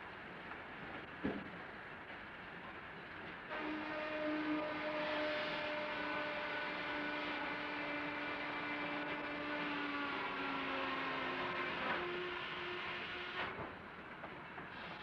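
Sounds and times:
machinery whine: 0:03.5 - 0:13.7
hiss: 0:14.6 - 0:15.0.

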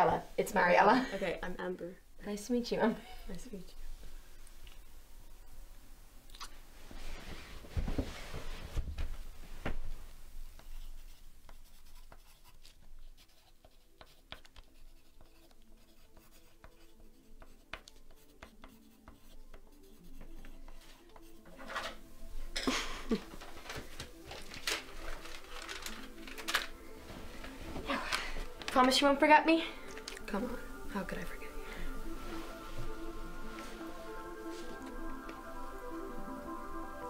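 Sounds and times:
pencil writing on paper: 0:10.6 - 0:21.5
paper rustling: 0:23.0 - 0:29.0.

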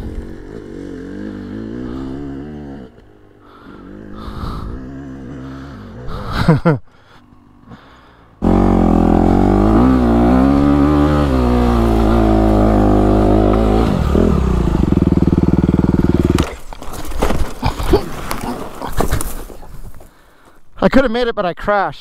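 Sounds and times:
dirt bike engine revving: 0:00.0 - 0:06.6, 0:07.3 - 0:16.6
fallen bike clattering in dirt: 0:16.2 - 0:20.1.

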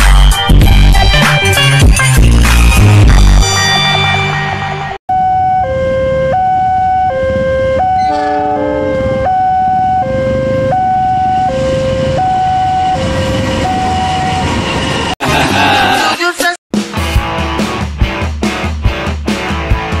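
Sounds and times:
chord of other tones: 0:03.6 - 0:14.4
two-tone level crossing alarm: 0:05.1 - 0:14.6
freight train rumbling past: 0:07.3 - 0:16.1.

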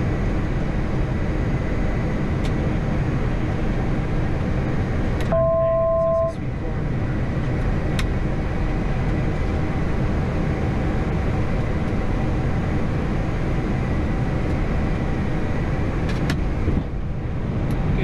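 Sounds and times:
cockpit airflow and engine rumble: 0:00.0 - 0:18.0
faint high tone: 0:05.3 - 0:06.4.

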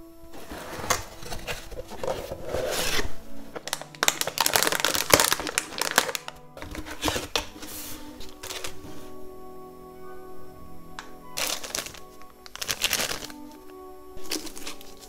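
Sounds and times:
soft background music: 0:00.0 - 0:15.0
plastic bag crinkling: 0:00.4 - 0:07.6, 0:11.4 - 0:13.6, 0:14.2 - 0:15.0
cardboard box being opened: 0:00.4 - 0:08.8.

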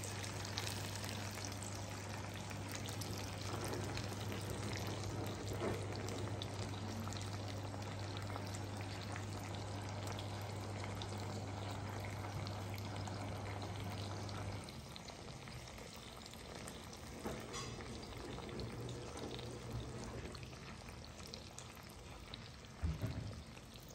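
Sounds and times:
meat sizzling in a frying pan: 0:00.0 - 0:08.8.

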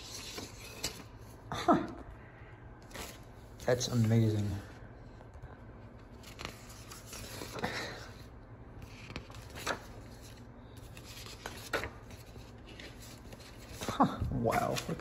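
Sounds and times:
paper rustling and sliding: 0:02.8 - 0:04.6, 0:06.0 - 0:15.0.

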